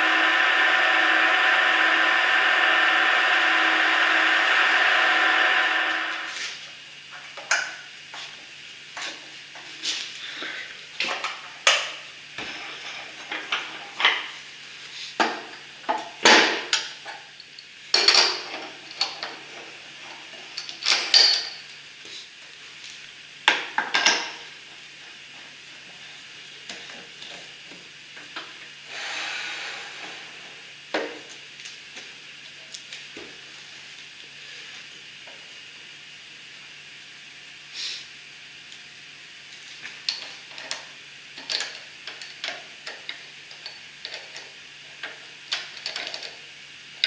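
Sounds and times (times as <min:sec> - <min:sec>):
tailstock sliding along lathe bed: 0:00.0 - 0:06.6.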